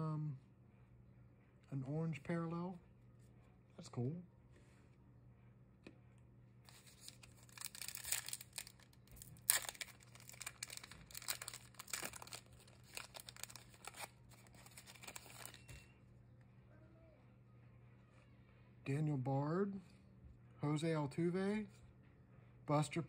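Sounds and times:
foil wrapper crinkling: 6.7s - 15.8s.

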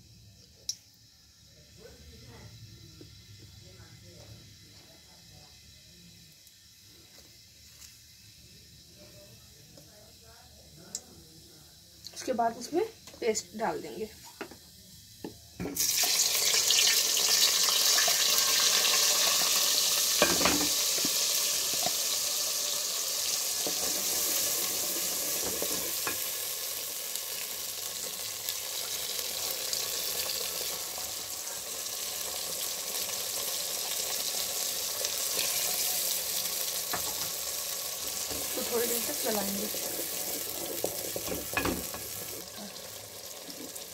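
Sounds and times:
paste sizzling in hot oil: 10.9s - 43.9s.

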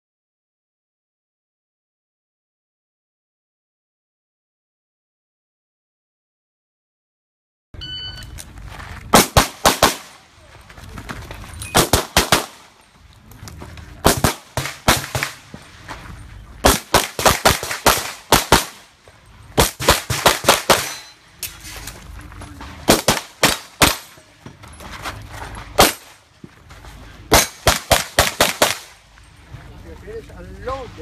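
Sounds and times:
handgun shots: 27.3s - 28.9s.

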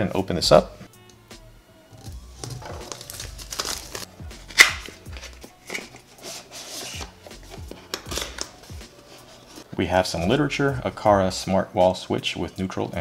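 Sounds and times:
quiet background music: 0.0s - 13.0s
cardboard scraping and rustling: 5.0s - 9.7s.

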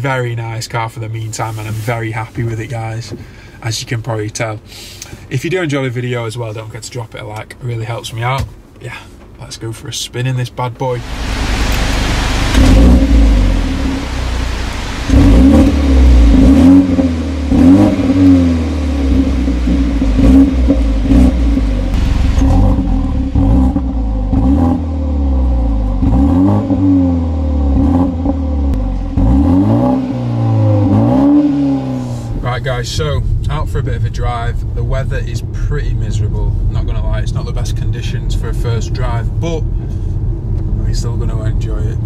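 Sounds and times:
car engine idling and revving: 11.0s - 42.0s.

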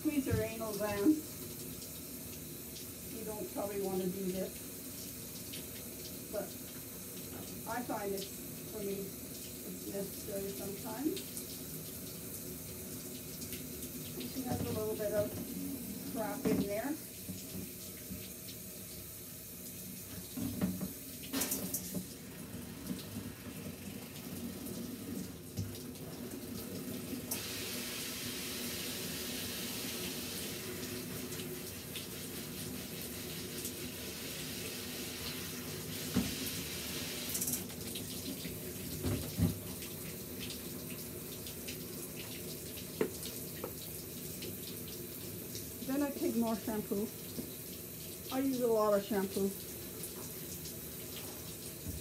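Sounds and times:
shower head spraying water: 0.0s - 19.0s, 19.7s - 26.3s, 27.2s - 38.6s.

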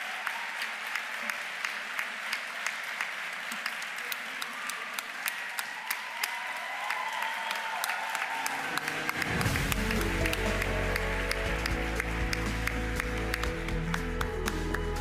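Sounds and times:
audience applauding: 0.0s - 15.0s
music with heavy bass: 9.4s - 15.0s.

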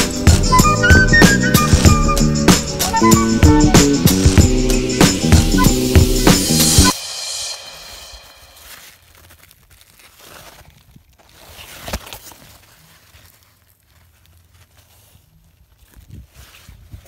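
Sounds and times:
rustling through leaves and grass: 0.0s - 5.5s, 6.9s - 17.0s.

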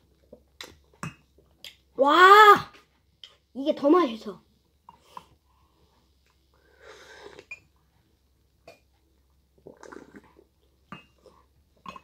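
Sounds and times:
child slurping: 9.7s - 10.5s.

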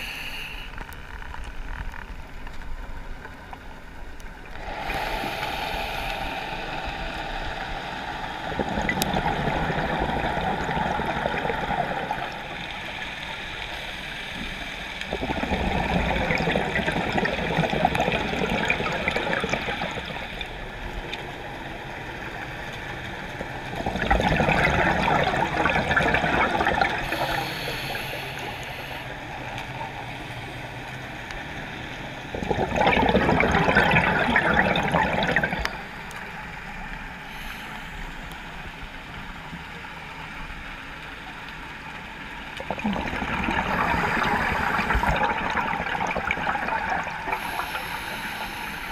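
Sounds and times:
steady hiss: 0.0s - 1.5s, 2.1s - 8.6s, 12.1s - 15.1s, 27.0s - 31.9s, 35.7s - 42.5s, 47.0s - 48.9s
underwater exhaled bubbles: 4.4s - 30.3s, 32.2s - 37.5s, 42.0s - 48.9s.

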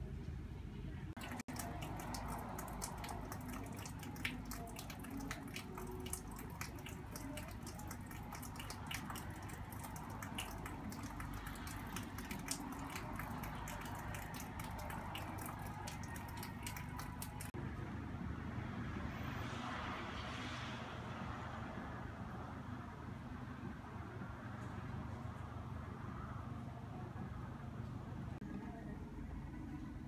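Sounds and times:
rain dripping off roof edge: 1.2s - 17.6s.

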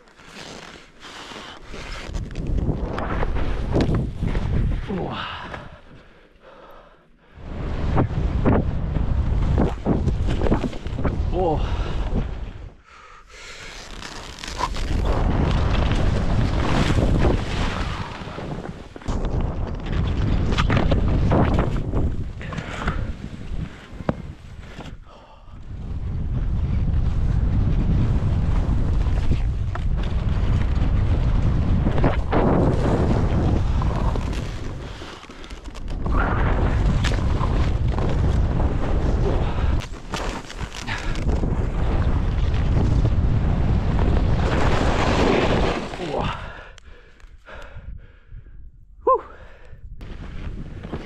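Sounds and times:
skis rushing through powder snow: 0.0s - 4.9s, 13.4s - 22.1s, 26.5s - 46.4s, 50.0s - 51.0s
skis hissing through snow: 0.2s - 2.1s
wind buffeting microphone: 14.8s - 24.6s, 25.6s - 35.0s, 35.9s - 40.1s, 40.7s - 45.4s.

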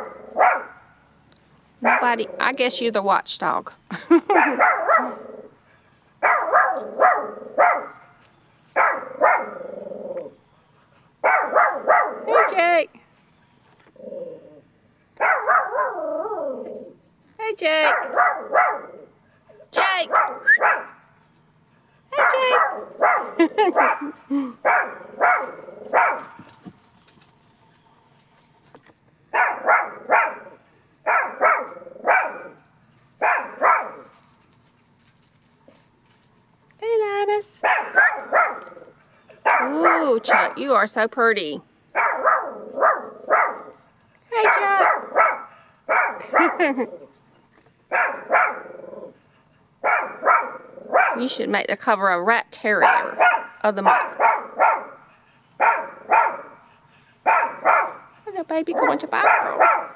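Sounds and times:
small dog barking: 0.0s - 0.8s, 1.8s - 2.4s, 4.3s - 5.3s, 6.2s - 8.1s, 8.8s - 9.6s, 11.2s - 12.8s, 15.2s - 16.1s, 17.8s - 19.1s, 20.0s - 21.0s, 22.2s - 26.4s, 29.3s - 32.6s, 33.2s - 34.2s, 37.6s - 38.8s, 39.4s - 40.6s, 41.9s - 46.9s, 47.9s - 48.7s, 49.8s - 51.4s, 52.8s - 55.0s, 55.6s - 56.6s, 57.2s - 58.1s, 58.7s - 59.9s.

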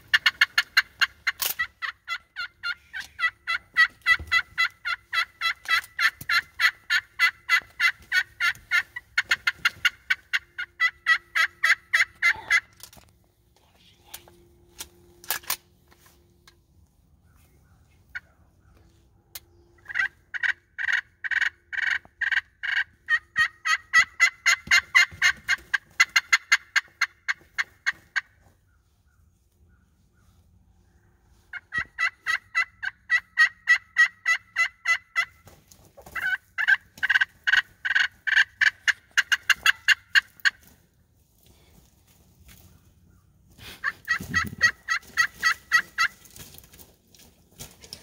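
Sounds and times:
turkey yelping: 0.0s - 12.7s, 19.8s - 28.8s, 31.3s - 35.4s, 36.0s - 40.7s, 43.6s - 46.3s.

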